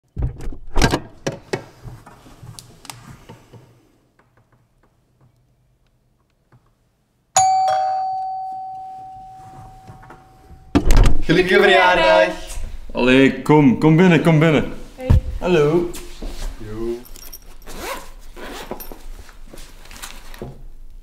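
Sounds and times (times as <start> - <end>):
doorbell chime: 7.4 - 10.8.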